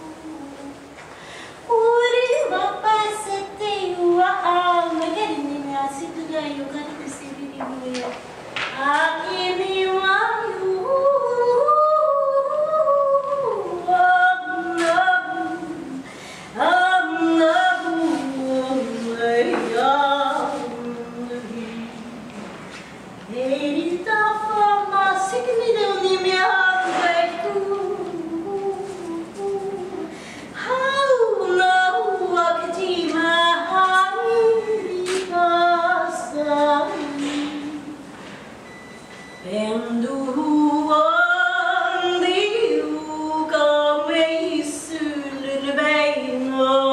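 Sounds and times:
woman singing unaccompanied: 0:00.0 - 0:01.0, 0:01.7 - 0:22.5, 0:23.2 - 0:38.1, 0:39.4 - 0:46.9.

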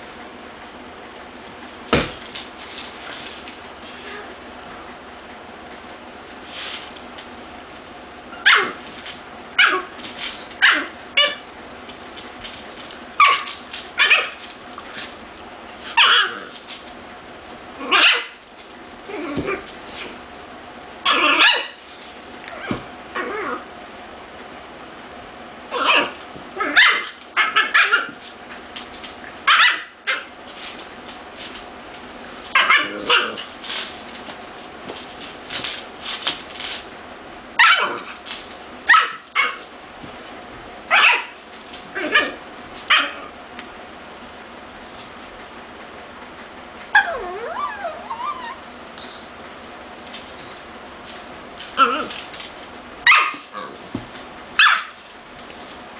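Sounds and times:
dogs barking and yipping: 0:08.3 - 0:08.8, 0:09.6 - 0:11.5, 0:13.1 - 0:14.5, 0:15.8 - 0:16.5, 0:17.9 - 0:18.4, 0:21.0 - 0:21.9, 0:25.7 - 0:28.2, 0:29.4 - 0:30.4, 0:32.5 - 0:33.4, 0:38.9 - 0:39.7, 0:40.9 - 0:41.4, 0:46.9 - 0:50.1, 0:53.0 - 0:53.6, 0:54.6 - 0:55.0.

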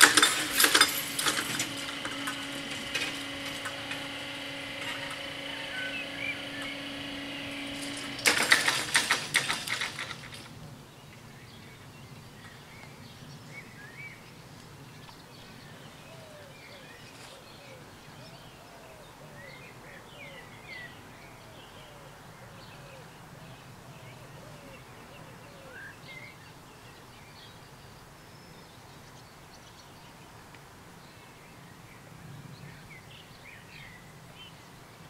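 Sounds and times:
barrier arms rattling down: 0:00.0 - 0:10.6
barrier motor humming: 0:00.0 - 0:10.6
birds chirping: 0:00.0 - 0:30.2.

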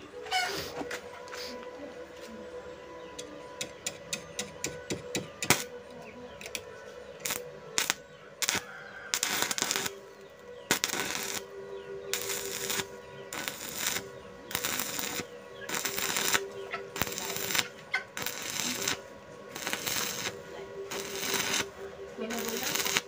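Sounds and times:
welding arc crackling: 0:07.2 - 0:10.0, 0:10.7 - 0:11.5, 0:12.1 - 0:23.0.

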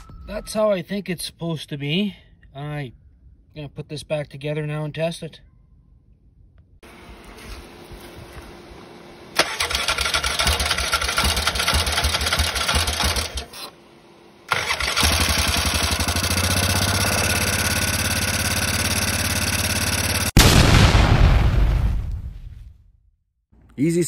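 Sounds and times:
engine idling: 0:08.3 - 0:20.4
engine on electric starter: 0:09.1 - 0:20.4.

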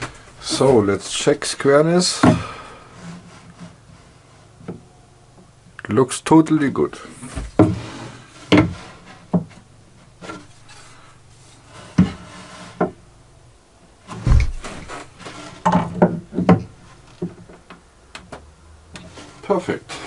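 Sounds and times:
wooden knocks and rubbing: 0:07.2 - 0:11.0, 0:11.6 - 0:13.0, 0:14.1 - 0:20.0
heavy deep thump: 0:14.2 - 0:14.9.

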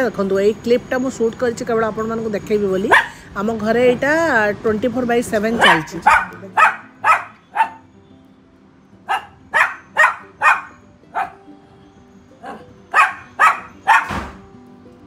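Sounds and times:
faint music: 0:00.0 - 0:15.0
dog barking: 0:02.9 - 0:03.2, 0:05.6 - 0:07.8, 0:09.1 - 0:11.4, 0:12.4 - 0:14.4.

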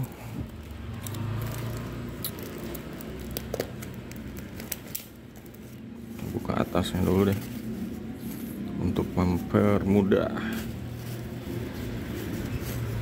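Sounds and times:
small crackles and clicks: 0:00.0 - 0:05.8
paper and plastic wrapping rustling: 0:00.0 - 0:13.0.

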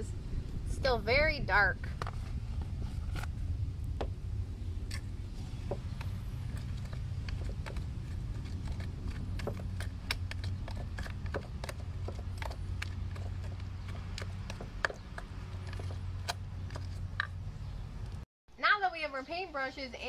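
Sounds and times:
steady low hum: 0:00.0 - 0:18.2
toy shovel stirring mud: 0:04.9 - 0:17.4.

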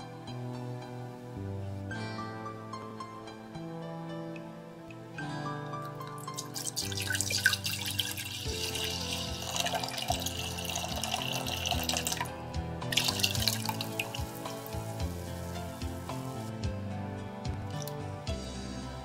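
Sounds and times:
gentle background music: 0:00.0 - 0:19.0
liquid pouring into metal saucepan: 0:06.0 - 0:12.3, 0:12.9 - 0:16.4.

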